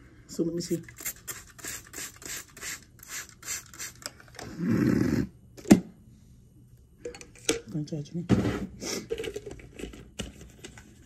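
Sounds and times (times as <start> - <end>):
spray bottle spritzing: 0.8 - 4.1.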